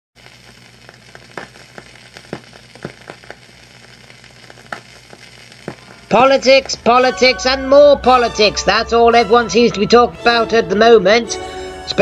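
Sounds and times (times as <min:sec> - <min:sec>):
film crackle pops and clicks: 0:00.2 - 0:07.3
faint hum: 0:00.2 - 0:08.0
steady hiss: 0:00.2 - 0:09.7.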